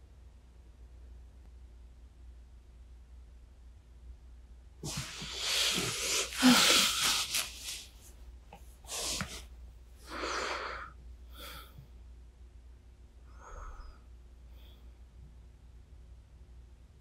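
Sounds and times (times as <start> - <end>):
person breathing: 4.8 - 7.9, 8.8 - 12.0, 13.2 - 15.0.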